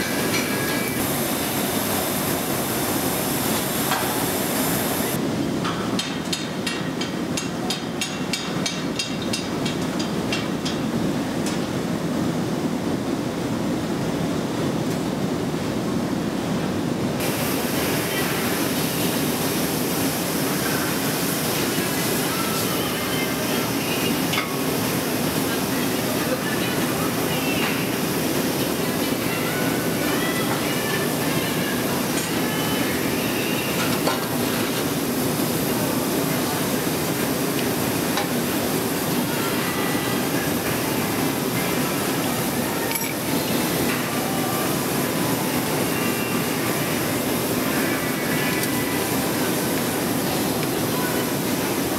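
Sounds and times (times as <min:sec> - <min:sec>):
glassworks workshop roar: 0:00.0 - 0:10.8.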